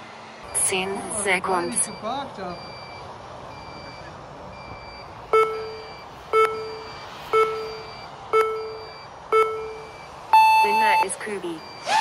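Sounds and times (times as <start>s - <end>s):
race timer short beeps: 4.7s - 12.0s.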